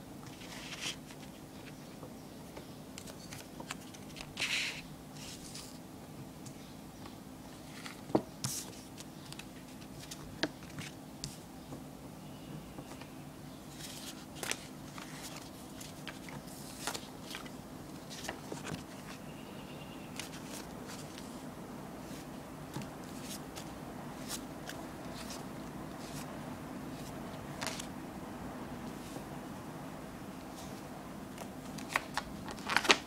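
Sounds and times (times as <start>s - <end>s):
steady low hum: 0.0s - 32.9s.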